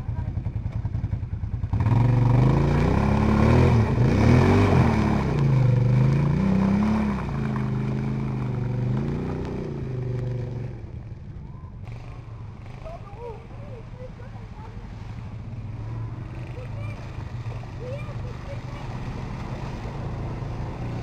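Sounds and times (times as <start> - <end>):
quad bike engine revving: 0.0 - 10.9, 11.9 - 21.0.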